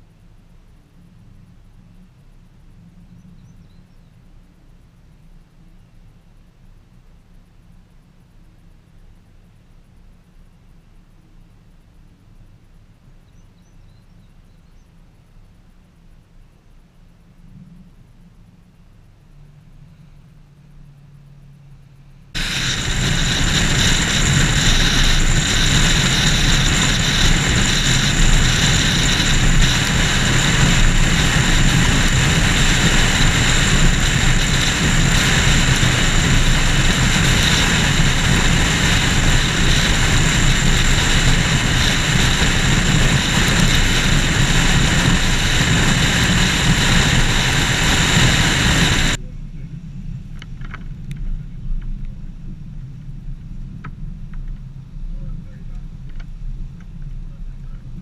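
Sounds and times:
tyre and wind noise: 22.3 - 49.2
car driving on road: 22.4 - 49.2.

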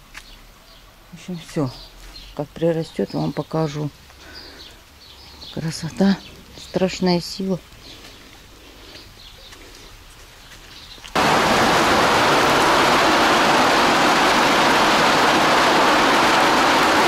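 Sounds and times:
faint outdoor ambience: 0.0 - 17.0
heavy rain on pavement: 11.1 - 17.0.

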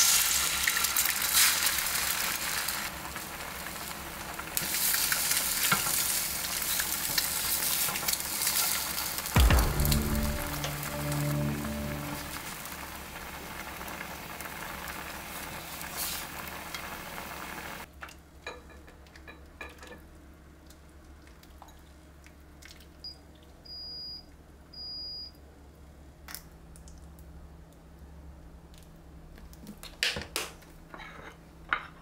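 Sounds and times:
oil sizzling in frying pan: 0.0 - 17.9.

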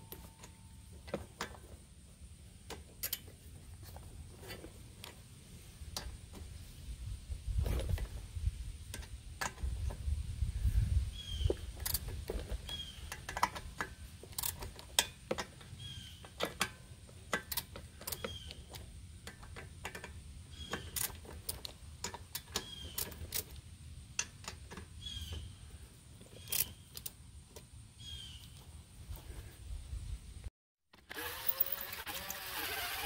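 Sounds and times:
hand ratchet clicking: 31.0 - 33.0.

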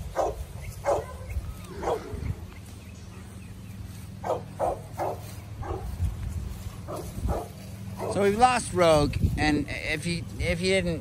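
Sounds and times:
dog barking: 0.1 - 2.2, 4.2 - 6.0, 6.9 - 8.3.

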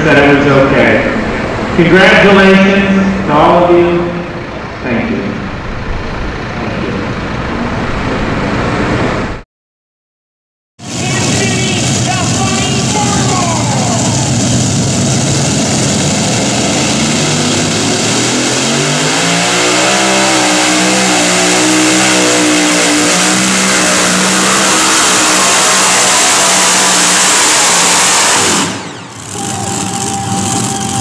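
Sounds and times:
tractor engines at full throttle: 0.0 - 9.4, 10.8 - 31.0.

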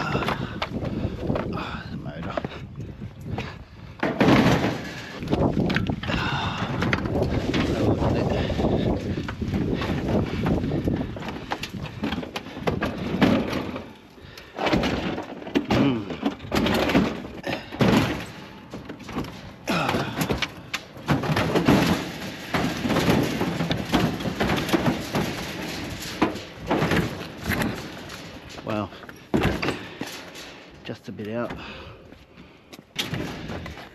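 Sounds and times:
metal casing clanks and scrapes: 6.8 - 31.8.

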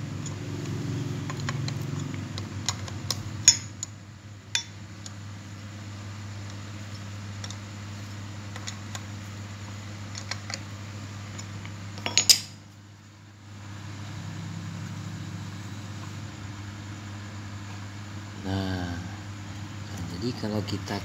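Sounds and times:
steady low hum: 0.0 - 21.0
sharp metallic clinks: 4.6 - 4.8.

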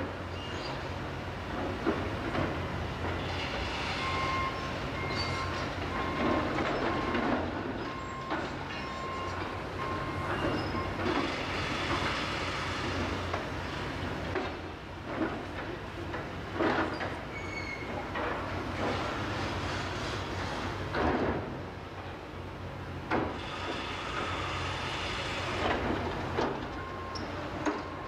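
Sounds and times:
excavator diesel engine: 0.0 - 21.0, 21.8 - 28.0
beeping alarm: 3.9 - 7.2, 7.9 - 11.0.

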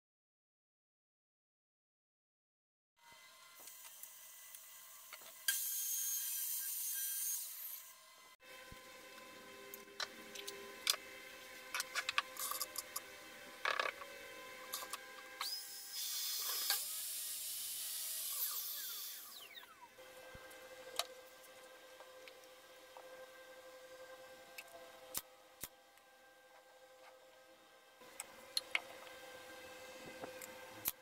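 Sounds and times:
miter saw cutting plywood: 3.0 - 22.3
power tool running: 3.0 - 26.1.

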